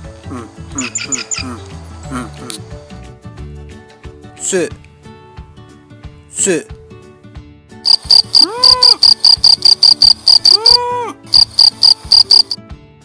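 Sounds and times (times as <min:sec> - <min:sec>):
drawn-out insect calls: 0:07.9 - 0:12.6
insect chirping rapid pulses: 0:07.9 - 0:12.6.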